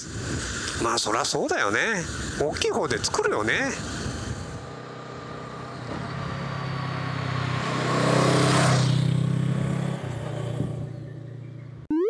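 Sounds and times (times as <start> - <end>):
wind noise: 0.0 - 4.7
motorcycle engine accelerating: 4.2 - 11.8.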